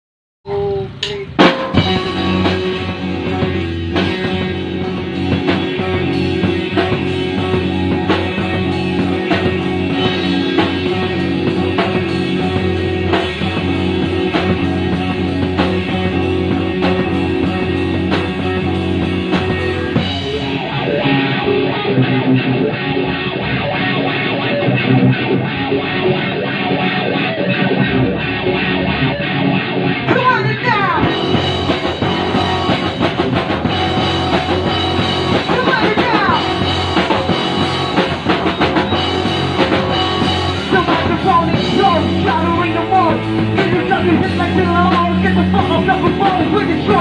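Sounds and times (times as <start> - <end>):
drum kit with cymbals: 0.5 - 21.8, 30.9 - 47.0
electric guitars: 0.5 - 47.0.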